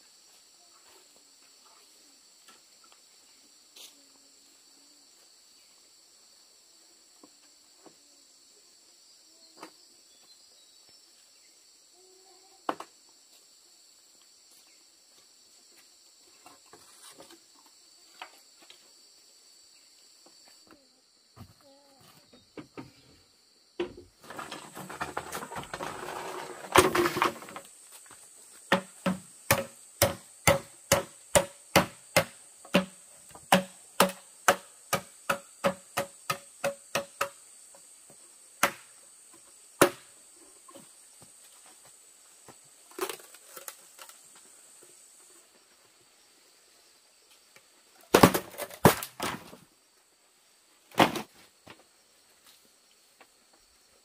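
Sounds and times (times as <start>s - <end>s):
insects trilling: 0.0s - 54.0s
scraping rustle: 16.4s - 17.5s, 24.2s - 28.2s.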